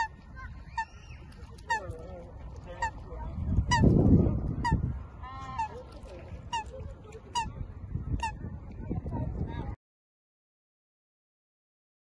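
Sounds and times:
goose honking: 0.0 - 4.0, 4.6 - 7.6.

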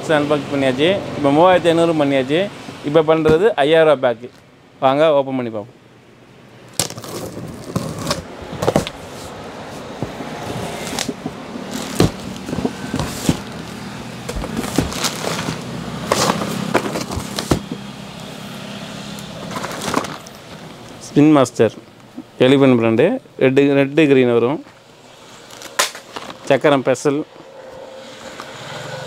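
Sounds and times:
packing tape ripping: 6.7 - 9.1, 10.4 - 17.8, 19.4 - 20.4, 25.3 - 26.5
cardboard rustling: 6.8 - 17.9, 19.4 - 20.7.

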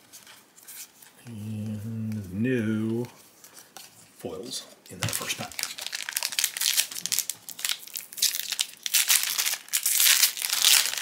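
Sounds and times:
foil wrapper tearing and crinkling: 5.1 - 11.0.

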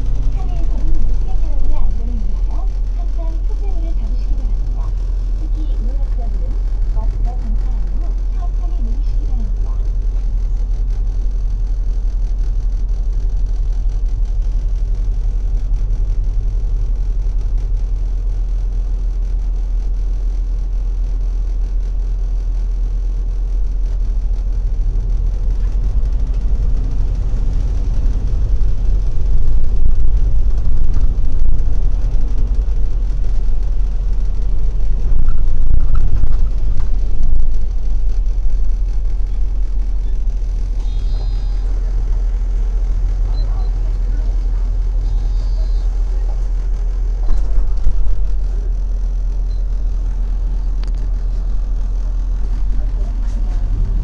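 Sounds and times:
bus engine and road rumble: 0.0 - 18.2, 23.5 - 54.0.

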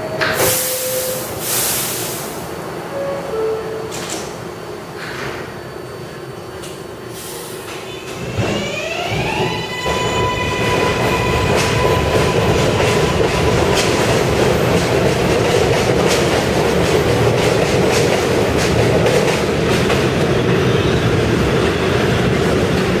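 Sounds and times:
train running rumble: 9.8 - 23.0.

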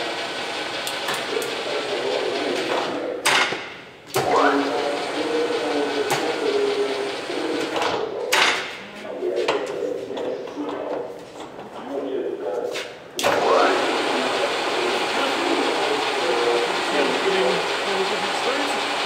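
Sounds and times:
lathe gearing whine: 0.0 - 3.0, 4.2 - 7.8, 13.2 - 19.0.

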